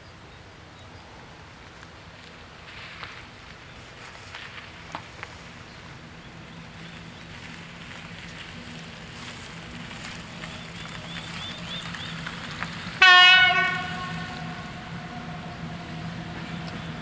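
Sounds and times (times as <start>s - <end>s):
train horn blast: 13.0s - 17.0s.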